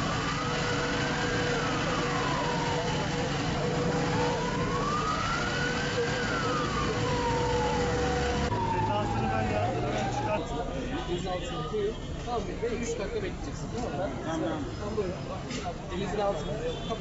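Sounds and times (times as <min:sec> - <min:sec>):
siren wailing: 0:00.0 - 0:10.4.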